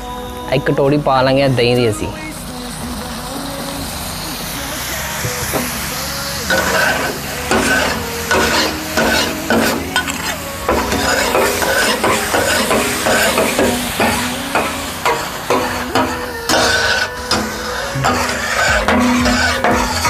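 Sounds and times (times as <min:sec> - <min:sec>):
food sizzling: 0:00.0 - 0:20.0
metal spatulas scraping steel pan: 0:06.5 - 0:20.0.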